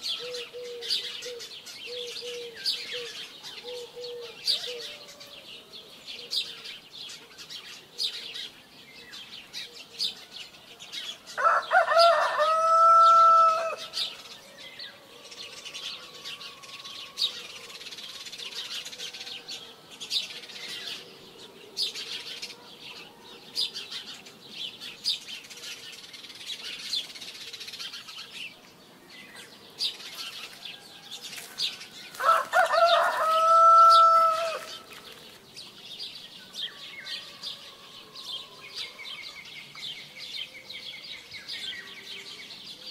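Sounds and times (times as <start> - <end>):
rooster crowing: 11.4 - 14.0, 32.1 - 34.8, 36.7 - 39.0.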